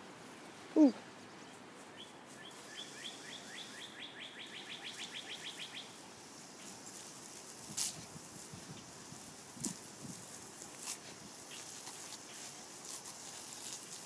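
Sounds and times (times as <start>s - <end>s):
songbird singing: 0.8s - 6.0s.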